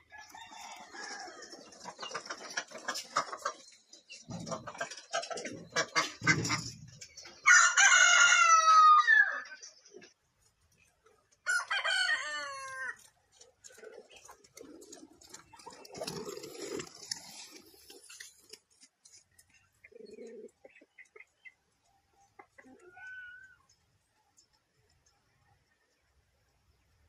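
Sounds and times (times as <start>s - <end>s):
rooster crowing: 0.0s - 1.5s, 7.4s - 9.5s, 11.4s - 13.0s
clattering and rustling: 1.5s - 7.4s.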